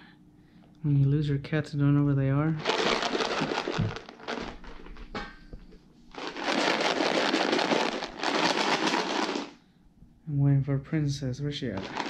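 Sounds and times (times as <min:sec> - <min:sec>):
treats rattling in plastic tub: 0:02.6 - 0:05.0, 0:06.1 - 0:09.6, 0:11.6 - 0:12.0.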